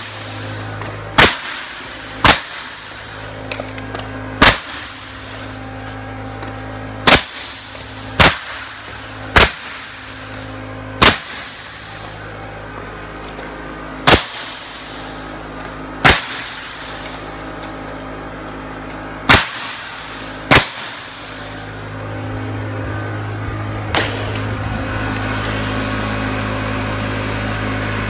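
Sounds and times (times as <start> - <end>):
nailer firing sharp shots: 0.0 - 5.6, 7.0 - 12.2, 14.0 - 17.7, 19.2 - 21.6, 23.9 - 24.6
air compressor motor running: 0.0 - 28.0.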